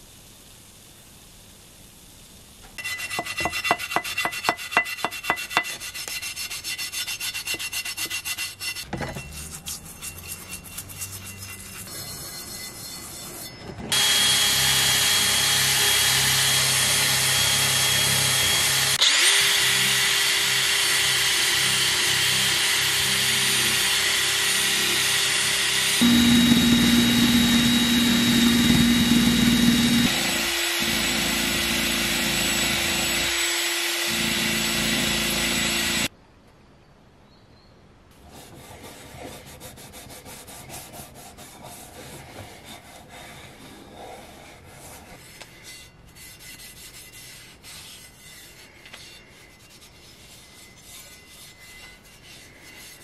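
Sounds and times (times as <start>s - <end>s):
toothbrush scrubbing trowel blade: 2.8s - 13.4s
drill spinning wire brush on metal: 2.8s - 36.1s.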